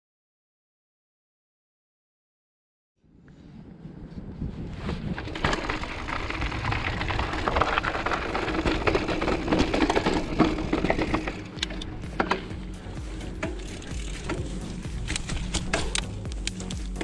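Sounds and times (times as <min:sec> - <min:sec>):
bike rattling: 0:04.8 - 0:17.0
tyres crunching over gravel: 0:05.2 - 0:17.0.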